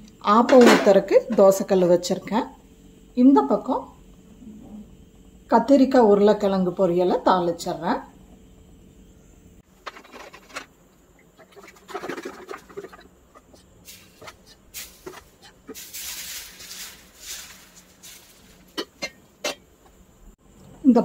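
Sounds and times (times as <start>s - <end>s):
batter sizzling hiss: 13.5s - 19.2s.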